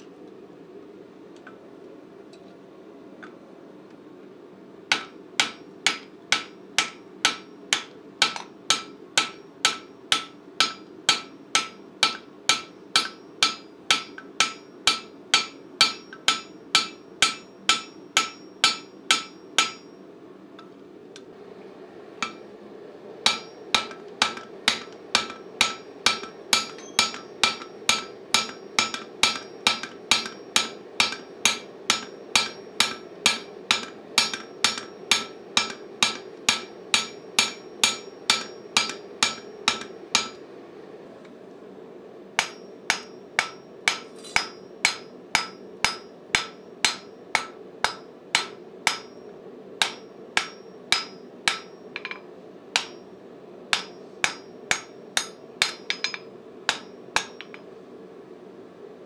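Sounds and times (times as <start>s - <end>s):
hammer striking hot metal on anvil: 4.9s - 20.0s, 22.2s - 22.5s, 23.2s - 40.4s, 42.4s - 53.1s, 53.7s - 57.6s.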